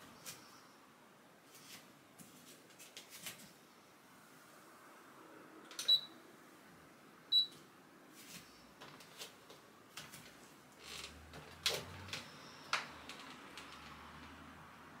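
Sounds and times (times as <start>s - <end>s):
short high-pitched beeps: 7.3s - 7.5s.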